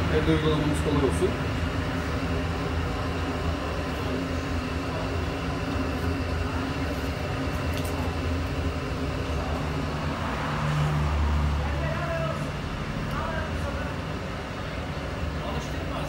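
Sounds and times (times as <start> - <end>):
background noise rush: 0.0 - 16.0
low mechanical hum: 0.0 - 16.0.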